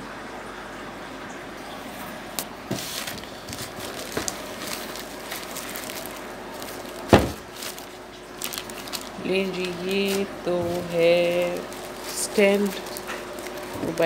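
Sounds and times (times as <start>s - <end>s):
plastic bag crinkling: 2.4s - 14.0s.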